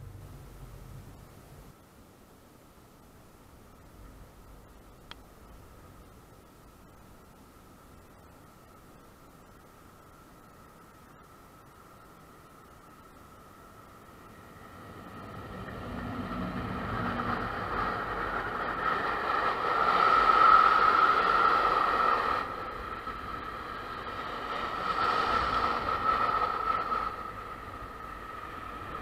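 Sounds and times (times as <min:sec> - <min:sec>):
steady high ringing tone: 0:00.0 - 0:29.0
train wheels rolling on rails: 0:03.8 - 0:29.0.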